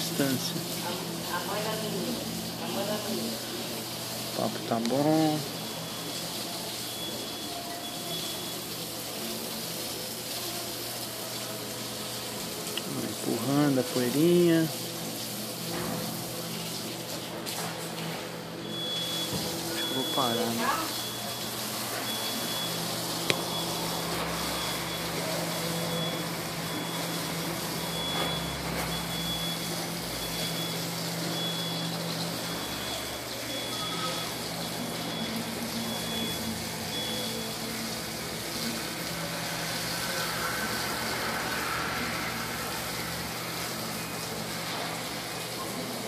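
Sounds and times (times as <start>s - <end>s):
high repeating beep: 18.6s - 21.4s, 32.6s - 34.3s.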